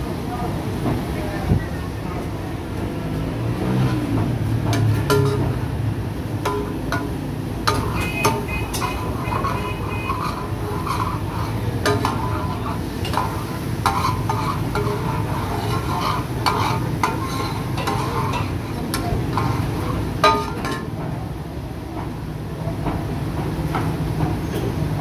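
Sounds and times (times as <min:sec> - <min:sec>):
metal spatula scraping griddle: 0:03.7 - 0:05.6, 0:06.4 - 0:20.9
steady low hum: 0:04.1 - 0:22.2
chicken sizzling in oil: 0:06.5 - 0:20.7.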